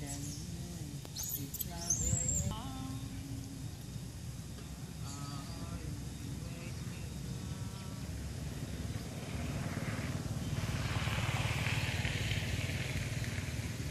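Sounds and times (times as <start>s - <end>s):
vehicle engine running: 0.0s - 13.9s
rising hiss: 7.3s - 13.9s.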